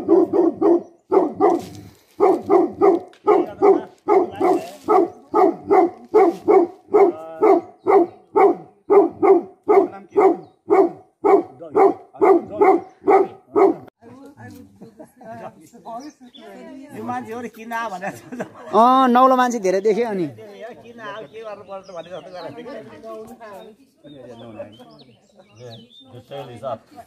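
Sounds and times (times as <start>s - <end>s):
dog barking: 0.0s - 13.9s.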